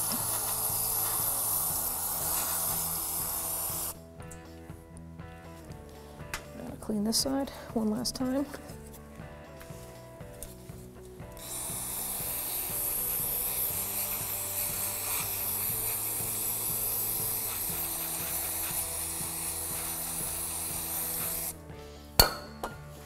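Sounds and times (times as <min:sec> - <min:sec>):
aerosol can hissing: 0:00.0 - 0:04.0, 0:11.2 - 0:21.6.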